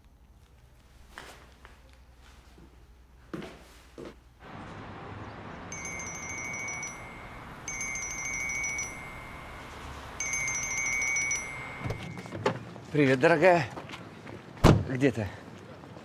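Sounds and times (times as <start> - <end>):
steady background noise: 0.0 - 16.0
chiming phone ringtone: 5.7 - 12.3.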